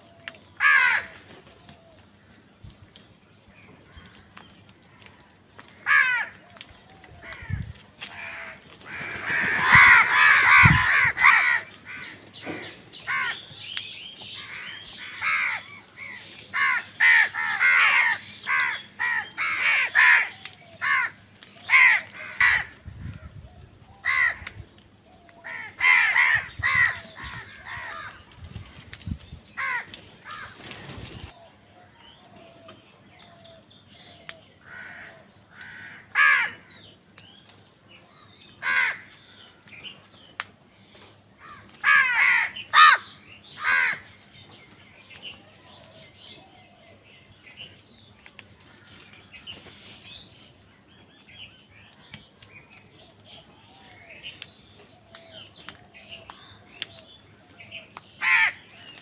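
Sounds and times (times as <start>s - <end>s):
crows cawing: 0.0s - 1.8s, 3.8s - 13.6s, 14.3s - 22.8s, 24.0s - 28.4s, 29.5s - 30.8s, 34.2s - 36.9s, 38.6s - 39.8s, 41.4s - 44.4s, 55.0s - 59.0s.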